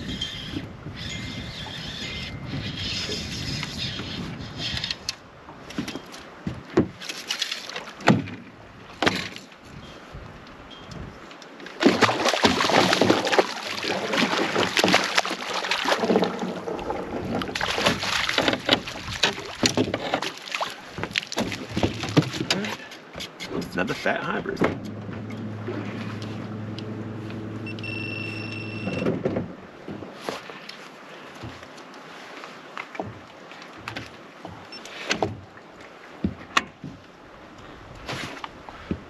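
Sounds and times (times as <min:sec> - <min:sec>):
fish splashing at water surface: 0:11.8 - 0:22.8.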